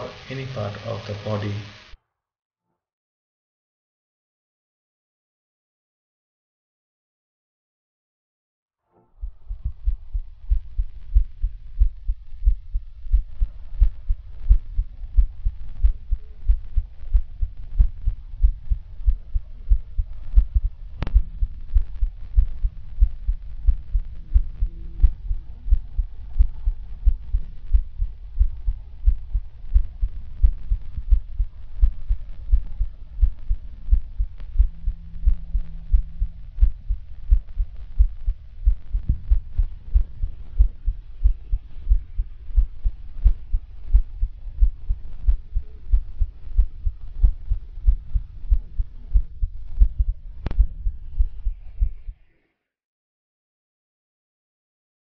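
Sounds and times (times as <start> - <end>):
heartbeat thumps through stethoscope: 9.2 - 52.2.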